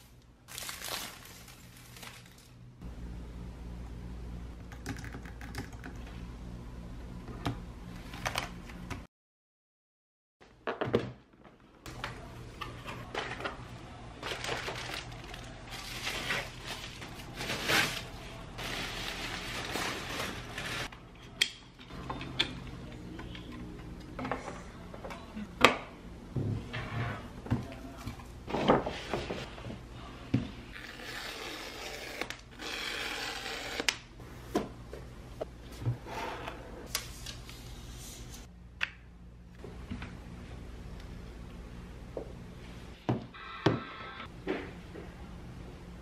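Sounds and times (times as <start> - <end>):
packaging rustling: 0.5 - 2.6, 14.2 - 20.9.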